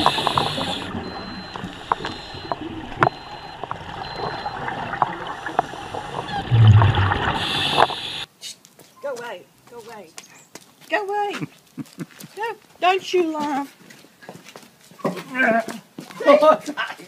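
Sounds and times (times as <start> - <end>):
underwater hiss: 0.0 - 2.1, 5.3 - 8.3
regulator bubbles gurgling: 0.0 - 8.3
small underwater clicks: 1.5 - 7.1.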